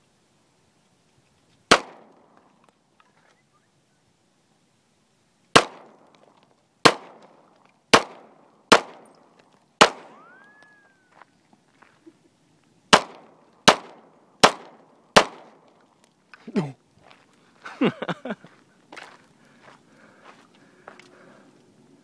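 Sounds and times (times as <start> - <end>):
handgun shots with echo: 1.7 - 2.4, 5.6 - 6.2, 6.8 - 10.5, 12.9 - 15.6
whistling tone: 10.1 - 11.2.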